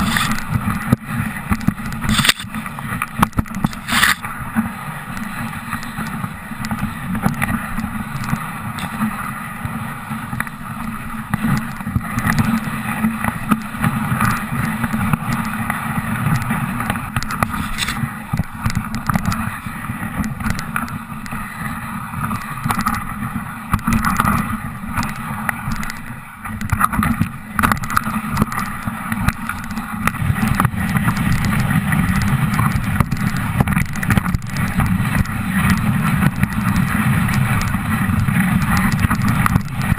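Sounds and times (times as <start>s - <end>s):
sled runners scraping on snow: 0.0s - 39.9s
sled rattling and knocking: 26.6s - 39.9s.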